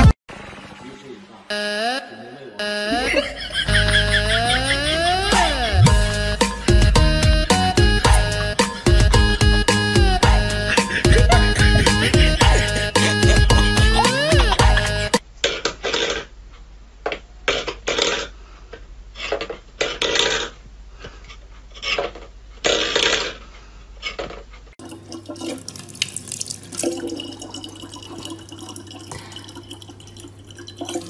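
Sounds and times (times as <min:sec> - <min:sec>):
tap water running into bottle: 0:24.8 - 0:31.0.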